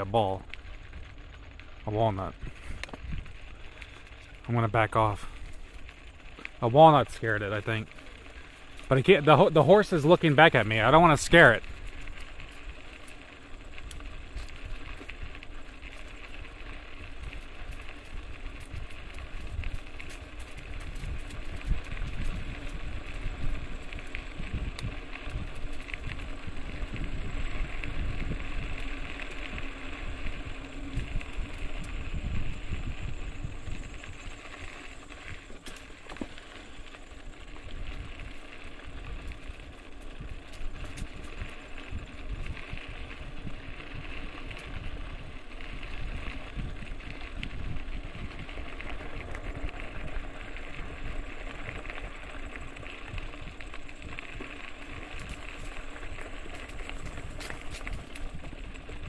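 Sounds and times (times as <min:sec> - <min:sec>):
rumble of bike tyres: 0:00.0 - 0:59.0
wind on microphone: 0:18.6 - 0:34.4.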